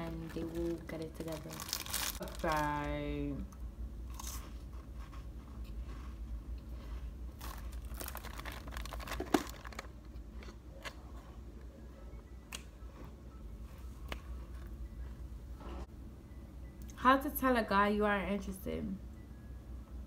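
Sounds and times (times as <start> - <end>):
plastic bag crinkling: 0.0 - 3.0, 7.3 - 9.9.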